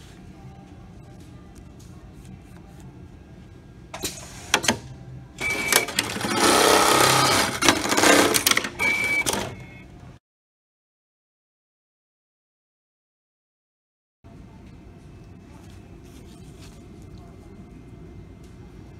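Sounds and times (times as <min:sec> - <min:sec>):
sewing machine running with hiss: 0:05.5 - 0:08.5.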